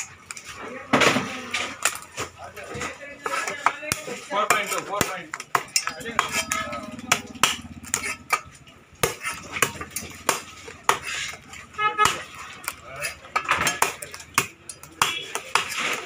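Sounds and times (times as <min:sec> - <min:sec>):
knife cutting crab shells: 0:09.0 - 0:16.0.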